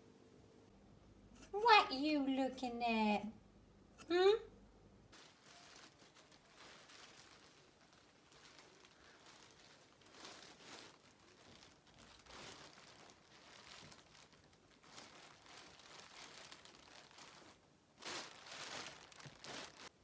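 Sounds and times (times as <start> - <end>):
plastic bin bag crinkling: 5.1 - 20.0.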